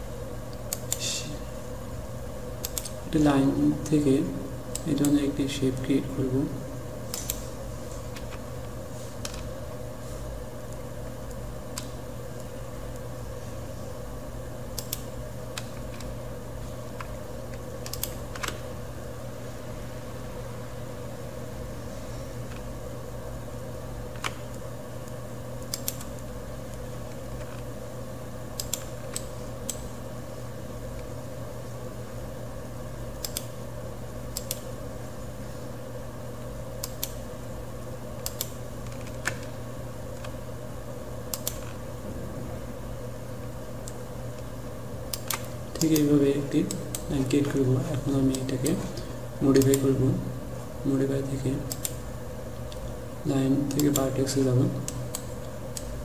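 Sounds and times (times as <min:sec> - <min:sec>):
steady background hum: 0:00.0 - 0:56.0
computer mouse clicking: 0:00.5 - 0:01.0, 0:02.6 - 0:03.0, 0:07.1 - 0:07.4, 0:14.7 - 0:16.1, 0:17.0 - 0:18.6, 0:24.1 - 0:27.7, 0:28.6 - 0:29.8, 0:33.2 - 0:33.6, 0:34.3 - 0:34.7, 0:36.8 - 0:37.2, 0:38.2 - 0:39.5, 0:41.3 - 0:41.8, 0:45.1 - 0:47.6, 0:48.2 - 0:50.0, 0:51.6 - 0:52.0, 0:53.6 - 0:54.2, 0:54.8 - 0:56.0.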